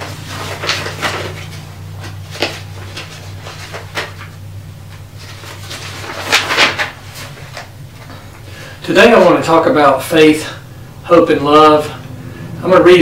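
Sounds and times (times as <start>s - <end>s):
rustles and knocks of handling: 0.0s - 8.5s
low electrical hum: 0.0s - 13.0s.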